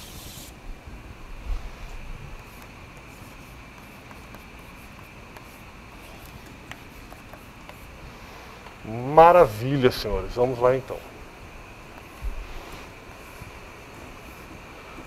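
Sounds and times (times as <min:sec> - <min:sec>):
hiss and hum: 0:00.0 - 0:15.0
pen writing on paper: 0:02.4 - 0:07.9.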